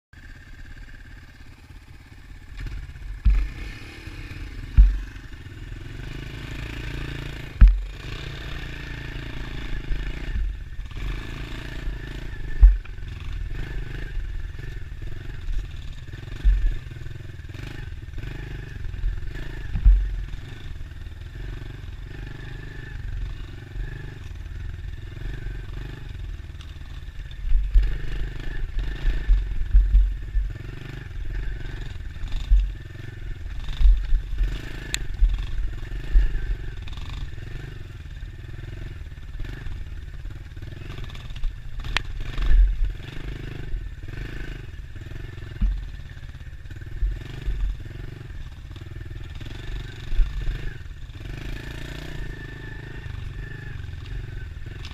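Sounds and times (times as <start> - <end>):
dirt bike engine: 0.2 - 54.9
sharp heavy thumps: 4.7 - 5.3, 7.6 - 7.9, 12.6 - 12.8, 29.3 - 30.2.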